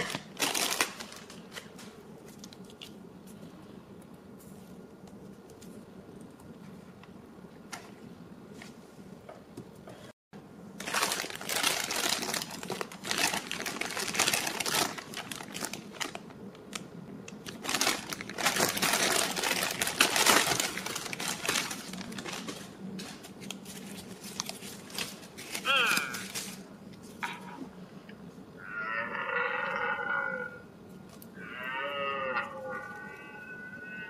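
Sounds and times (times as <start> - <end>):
plastic wrapping crinkling: 0.0 - 3.0, 10.7 - 26.7.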